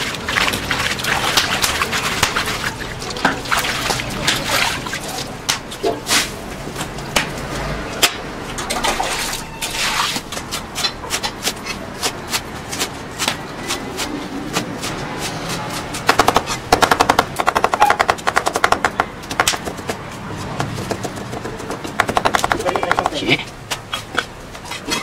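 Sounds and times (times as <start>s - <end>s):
cleaver chopping on wooden block: 16.0s - 23.9s.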